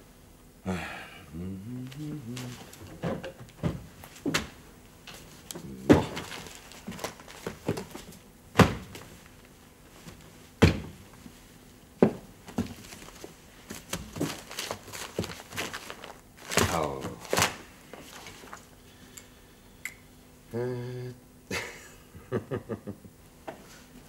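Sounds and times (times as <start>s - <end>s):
papers shuffling: 1.8s - 4.4s, 5.0s - 8.2s, 12.5s - 18.7s.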